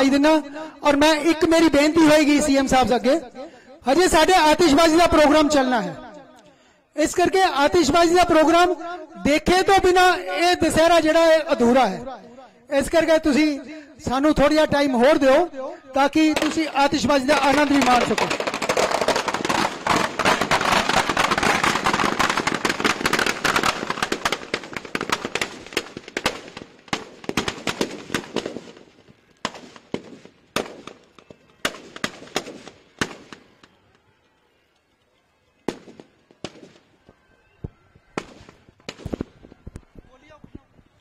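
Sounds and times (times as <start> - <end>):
firecrackers crackling and banging: 15.4 - 41.0.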